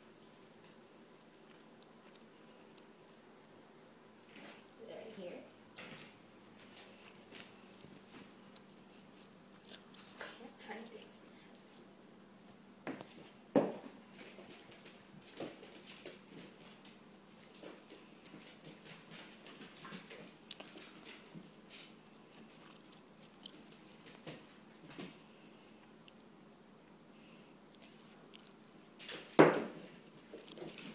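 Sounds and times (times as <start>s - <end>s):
paws clicking on hardwood floor: 12.9s - 25.2s, 29.0s - 30.9s.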